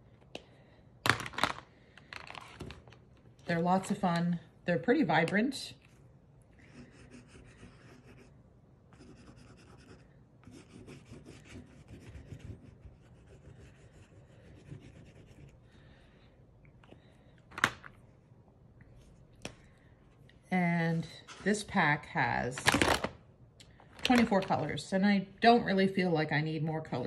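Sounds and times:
crayon scratching on paper: 6.6 - 8.3, 8.9 - 15.6.

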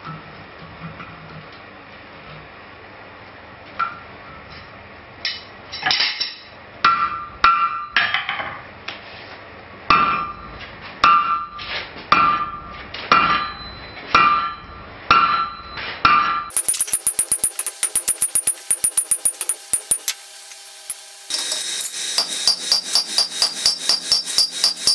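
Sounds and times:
hammer striking steel on anvil: 11.0 - 13.5, 14.2 - 20.2, 20.8 - 24.9
fast run of clicks: 16.5 - 20.2
metallic anvil ring: 16.5 - 20.2, 20.9 - 24.9.

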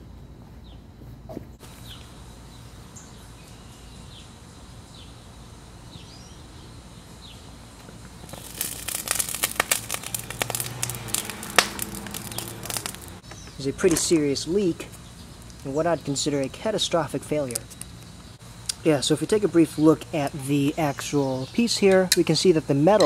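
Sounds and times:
faint outdoor background: 0.0 - 23.0
molten metal crackling and spitting: 8.2 - 13.2.

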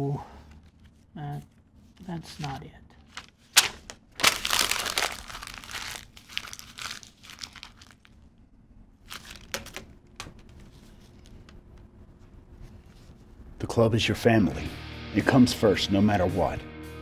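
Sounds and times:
paper being crumpled: 1.9 - 8.2, 9.0 - 11.5.

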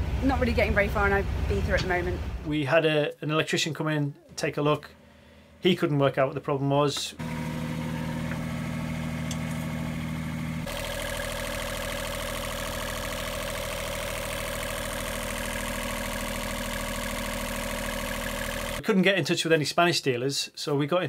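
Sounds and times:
boat diesel engine idling: 7.2 - 18.8.

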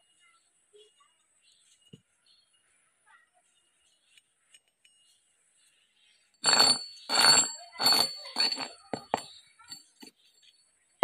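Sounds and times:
metallic gear clanks with ringing: 6.5 - 10.1.

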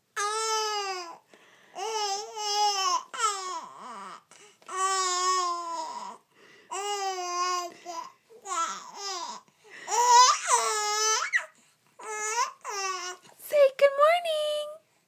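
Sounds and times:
baby cooing: 0.1 - 1.2, 1.8 - 13.3.

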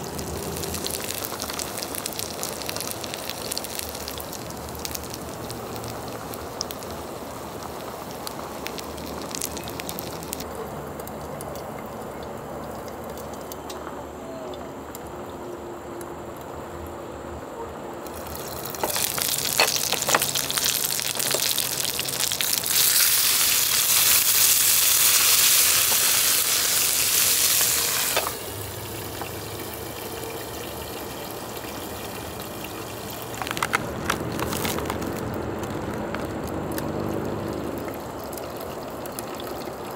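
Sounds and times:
chicken wings sizzling: 0.0 - 13.5, 18.0 - 39.9
sharp crackles: 0.0 - 14.0, 18.1 - 28.6, 32.3 - 39.9
broth bubbling at a boil: 0.0 - 16.7, 18.0 - 39.9.

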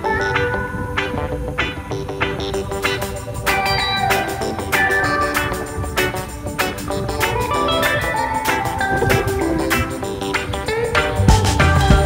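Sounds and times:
instrumental music with steady beat: 0.0 - 12.0.

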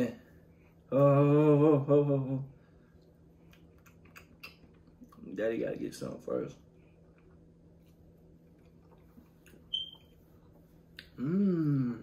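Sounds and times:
steady low hum: 0.0 - 12.0
small eating sounds: 2.6 - 12.0
brief high squeak: 9.7 - 10.2.

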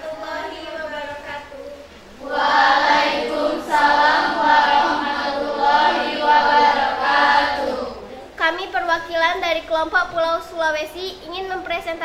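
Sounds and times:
children chanting in unison: 2.1 - 8.2.

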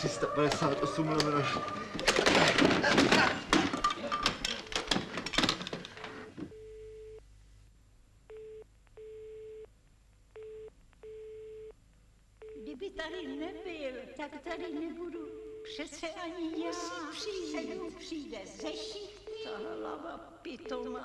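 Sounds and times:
clattering and knocking: 2.0 - 6.1.

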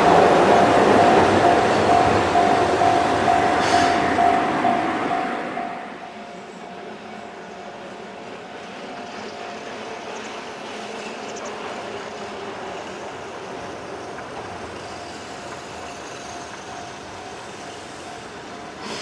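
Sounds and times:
train wheels on rail: 0.0 - 19.0.

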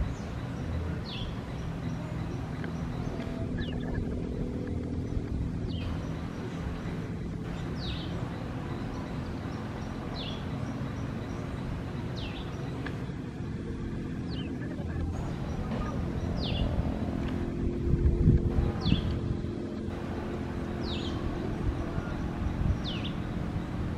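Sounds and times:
steady low hum: 0.0 - 23.9.

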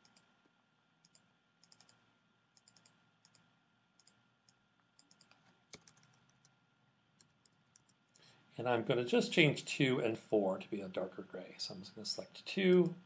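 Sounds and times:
typing on computer keyboard: 1.0 - 2.0, 2.6 - 6.5.

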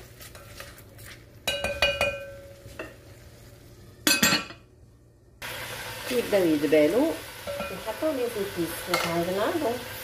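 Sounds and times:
wooden spoon stirring in pot: 0.0 - 3.0
onion and garlic sizzling in oil: 0.0 - 4.2, 5.4 - 10.0.

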